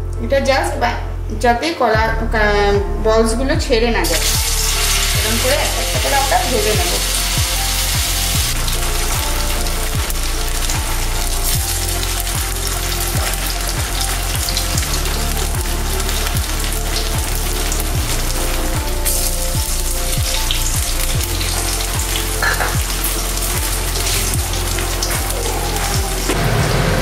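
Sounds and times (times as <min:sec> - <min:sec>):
background music with low beat: 0:00.0 - 0:27.0
food sizzling in deep-fry oil: 0:04.0 - 0:27.0.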